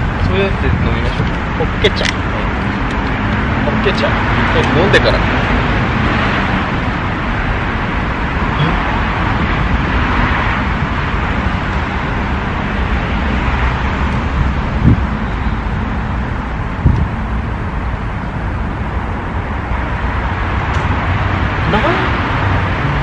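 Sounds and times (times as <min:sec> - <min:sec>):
road traffic noise: 0:00.0 - 0:23.0
low thumps: 0:14.4 - 0:15.3, 0:16.6 - 0:17.4.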